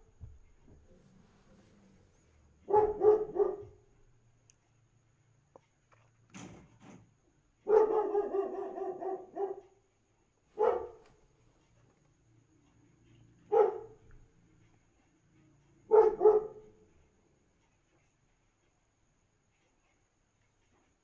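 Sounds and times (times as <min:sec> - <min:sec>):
dog barking: 0:02.6 - 0:03.9, 0:07.6 - 0:09.8, 0:10.6 - 0:11.2, 0:13.0 - 0:14.2, 0:15.8 - 0:16.9.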